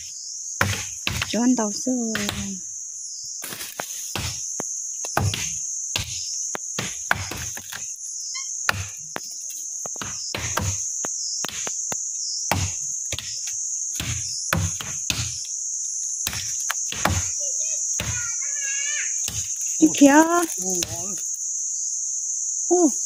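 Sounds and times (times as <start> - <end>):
insects droning: 0.0 - 23.0
machete chopping brush: 0.6 - 1.4, 2.1 - 2.5, 3.4 - 7.9, 8.7 - 15.4, 16.2 - 17.4, 19.2 - 21.3.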